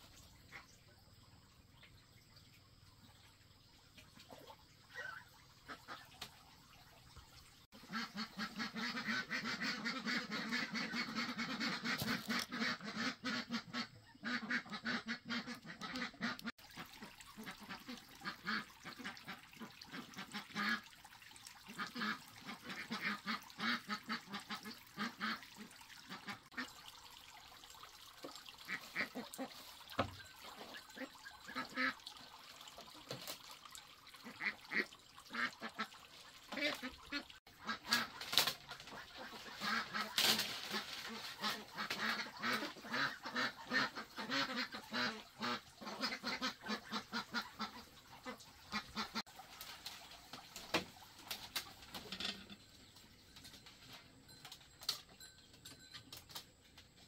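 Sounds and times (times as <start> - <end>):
ducks quacking: 7.8 - 20.9, 21.7 - 26.8, 28.6 - 32.0, 34.2 - 49.2.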